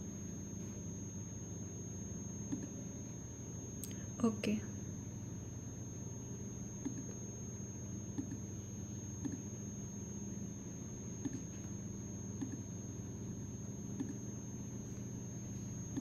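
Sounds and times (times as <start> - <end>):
low electrical hum: 0.0 - 16.0
thin high whine: 0.0 - 16.0
computer mouse clicks: 2.5 - 2.8, 6.8 - 7.2, 8.2 - 8.4, 11.2 - 11.5, 12.4 - 12.6, 13.9 - 14.2.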